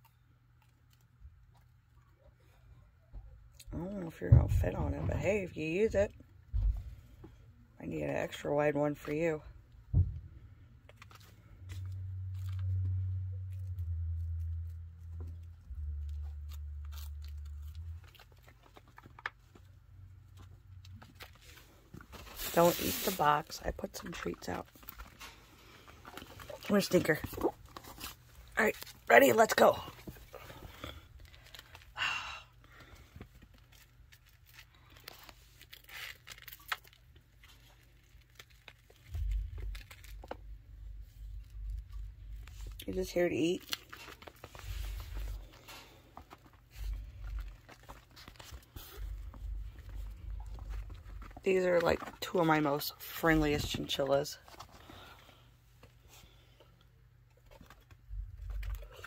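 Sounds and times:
chinchilla gnawing crunches: 10.9 - 19.8
low rumble: 39.0 - 45.6, 46.7 - 51.8.

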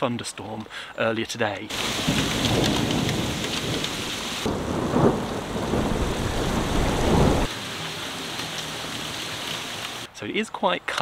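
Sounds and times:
thunder rumbling: 1.7 - 7.5
heavy rain pouring: 1.7 - 10.1.

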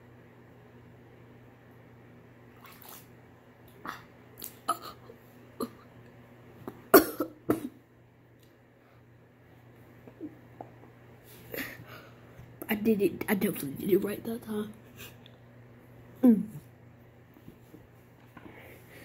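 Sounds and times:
person coughing and spluttering: 4.0 - 5.9, 6.7 - 7.8.

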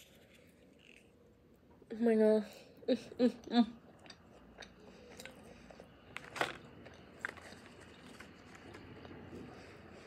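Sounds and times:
person chewing food: 3.8 - 9.2.

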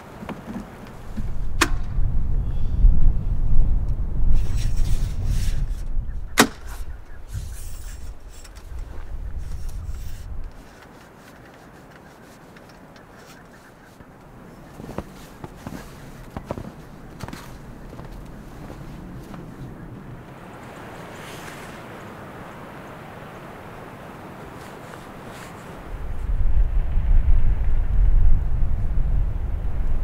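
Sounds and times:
awning fabric rushing: 6.6 - 19.6.

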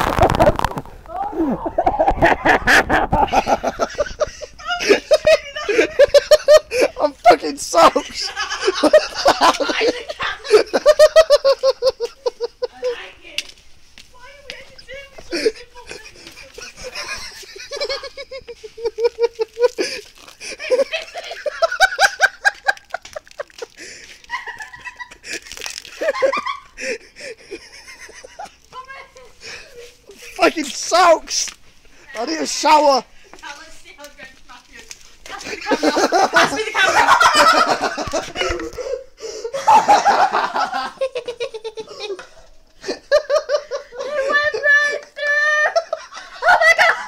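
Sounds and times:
person laughing hard: 1.4 - 7.2, 7.8 - 12.7, 15.3 - 28.5, 35.4 - 42.2.

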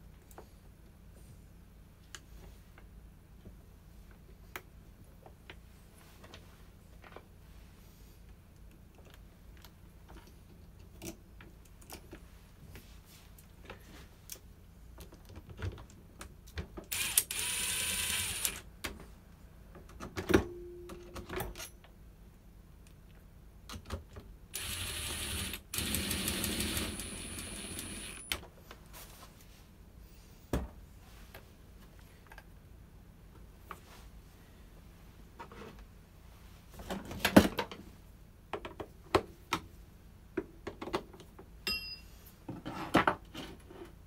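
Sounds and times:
sharp ringing metal knock: 41.6 - 42.1.

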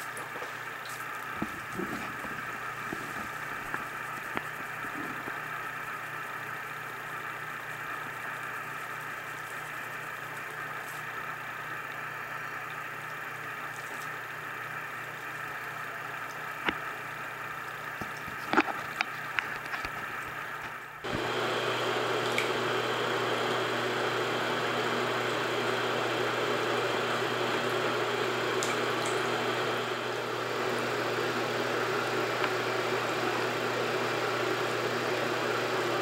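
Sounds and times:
steady hum: 0.0 - 33.5
water splashing and dripping: 28.6 - 29.3.

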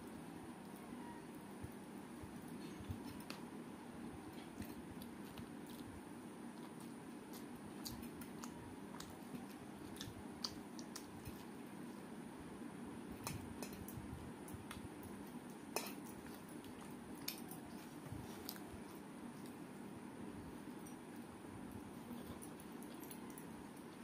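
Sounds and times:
chewing and mouth smacks: 4.3 - 11.6, 14.5 - 19.6.

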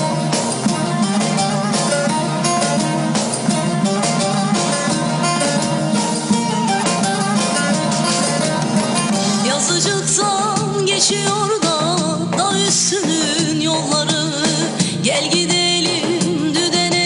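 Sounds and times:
long-necked lute picked in runs: 0.0 - 10.1
keyboard accompaniment: 0.0 - 17.0.

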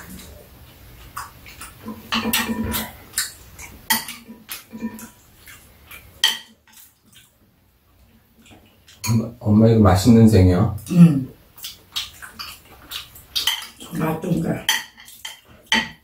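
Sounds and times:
utensils clinking on ceramic bowls: 2.0 - 3.0, 3.9 - 5.2.

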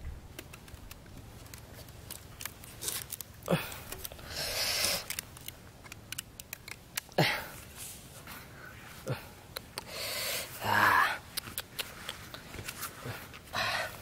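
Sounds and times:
plastic string clicking and rustling: 0.0 - 7.2
string snapping: 0.0 - 7.2, 9.5 - 9.9, 11.3 - 12.8.

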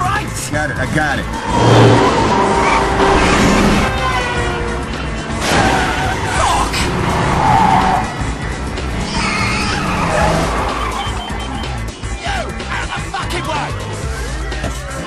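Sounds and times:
action music score: 0.0 - 15.0
car engines running: 0.0 - 15.0
tyre squeals: 0.9 - 4.6, 9.0 - 11.8.

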